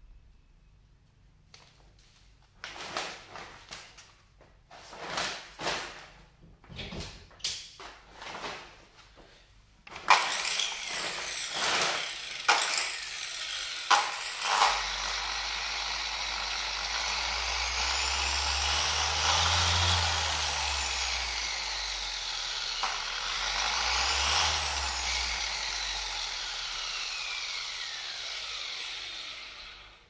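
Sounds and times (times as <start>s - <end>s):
polisher motor running: 10.2s - 30.0s.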